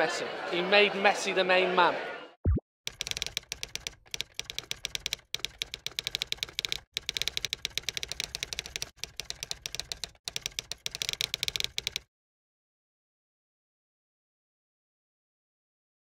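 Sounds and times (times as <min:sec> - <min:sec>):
keystroke clicks: 0:02.9 - 0:12.1.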